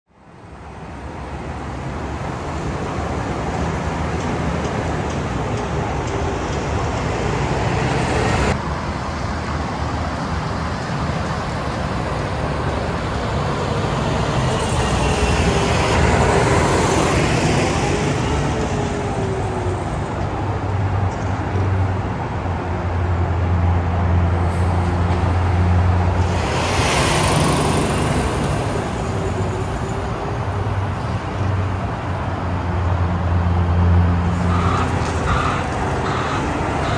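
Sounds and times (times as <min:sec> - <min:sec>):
road traffic: 0:00.1 - 0:36.9
truck driving past: 0:22.8 - 0:36.9.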